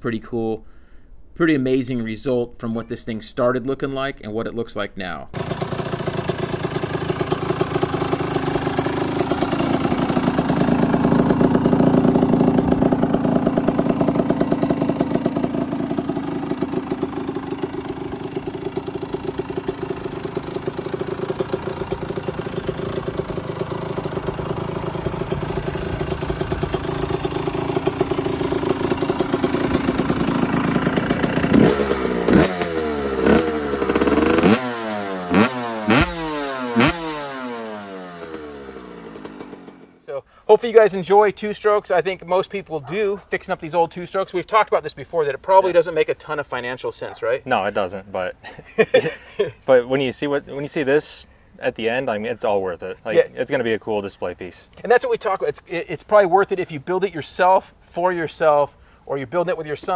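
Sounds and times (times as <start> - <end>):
two-stroke motorcycle engine revving: 5.4 - 40.0.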